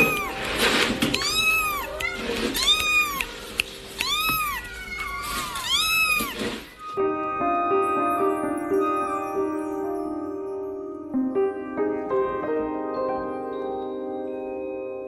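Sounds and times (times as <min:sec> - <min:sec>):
kitten meowing: 0:00.0 - 0:07.4.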